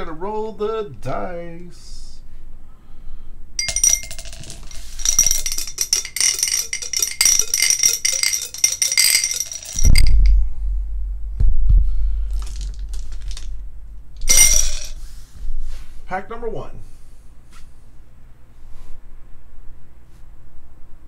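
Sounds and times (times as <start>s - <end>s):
die rattling in glass: 3.6s - 10.3s, 14.2s - 15.0s.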